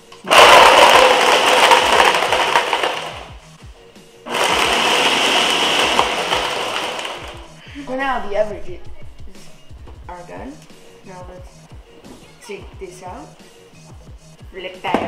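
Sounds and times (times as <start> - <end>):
blender crushing ice: 0.2 - 3.4, 4.3 - 7.5.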